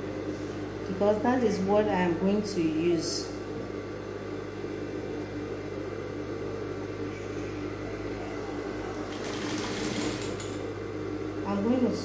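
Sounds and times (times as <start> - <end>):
sewing machine running: 8.3 - 10.6.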